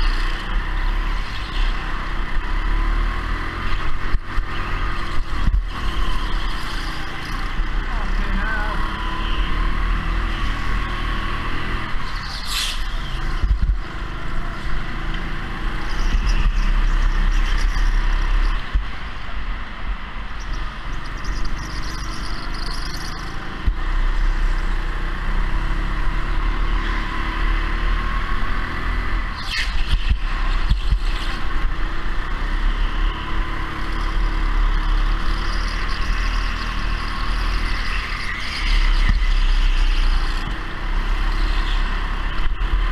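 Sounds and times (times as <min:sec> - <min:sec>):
go-kart motor and road din: 0:00.0 - 0:42.9.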